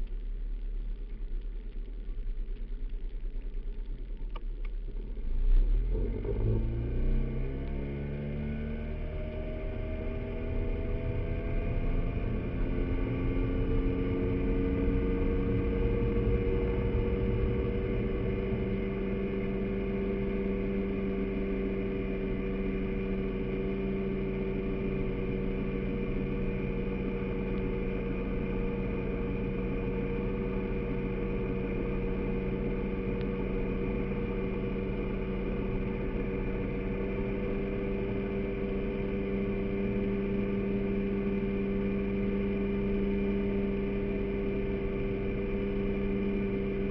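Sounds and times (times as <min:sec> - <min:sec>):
low rushing noise: 0:06.6 - 0:46.9
outboard motor running: 0:07.4 - 0:46.9.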